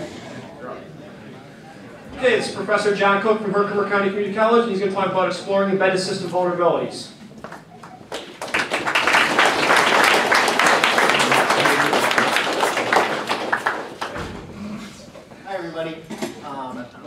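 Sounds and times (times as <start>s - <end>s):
audience applauding: 7.4s - 14.2s.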